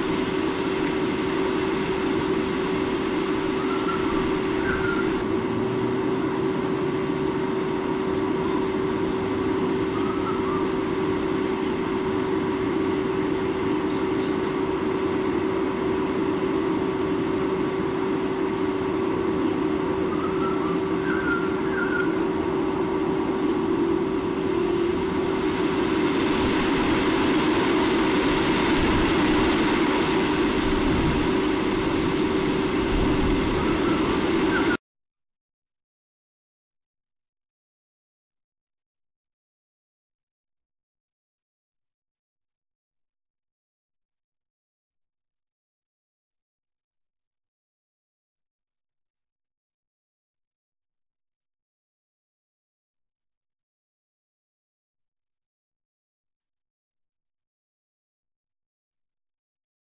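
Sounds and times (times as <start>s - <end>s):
river rushing: 0.0s - 5.9s, 24.1s - 34.8s
constant low hum: 0.0s - 34.8s
wind: 0.0s - 34.8s.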